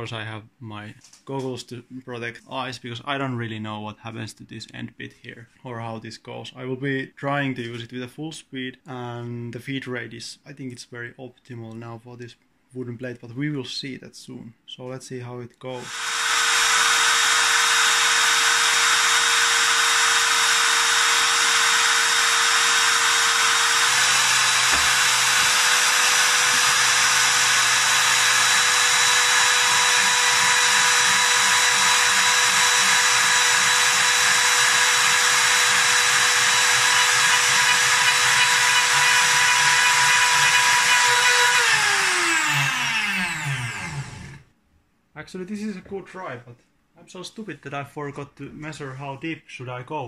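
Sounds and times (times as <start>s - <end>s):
router motor whining: 15.8s - 44.4s.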